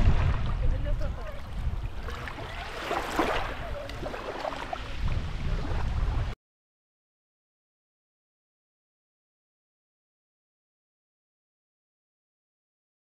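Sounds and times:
small waves lapping on pebbles: 0.0s - 5.3s.

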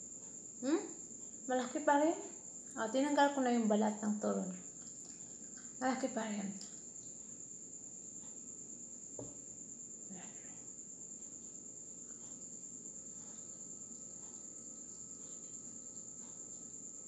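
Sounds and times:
insect trilling: 0.0s - 17.0s
soft knock: 9.2s - 9.4s.

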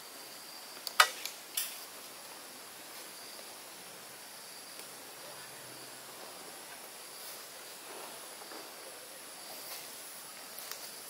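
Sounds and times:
sharp click: 0.8s - 1.8s.

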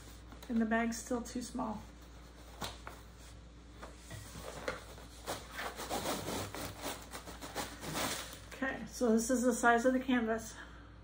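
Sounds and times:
canvas scraping against fabric bag: 5.1s - 8.5s.

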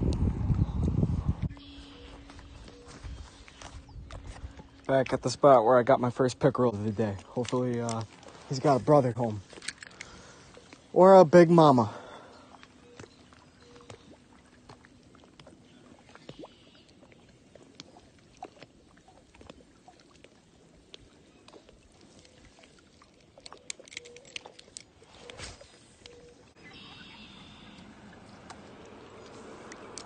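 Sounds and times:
rustle of rod being moved: 22.0s - 26.3s.

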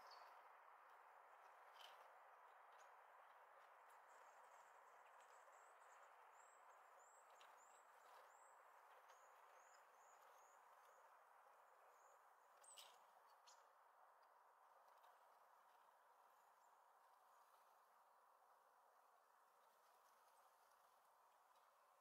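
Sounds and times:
small songbirds calling: 0.0s - 0.3s.

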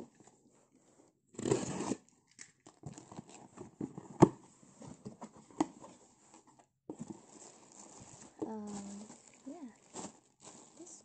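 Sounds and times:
cardboard rustling and scraping: 3.0s - 11.0s.

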